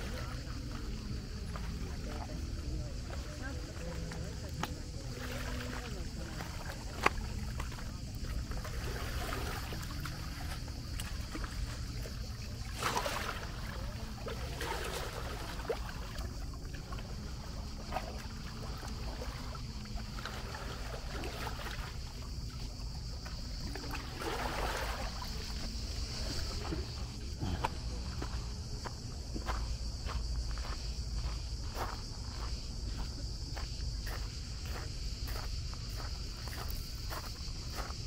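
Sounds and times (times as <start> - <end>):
faint voices: 0.0 - 20.8, 25.2 - 29.6
cicadas buzzing: 0.0 - 38.0.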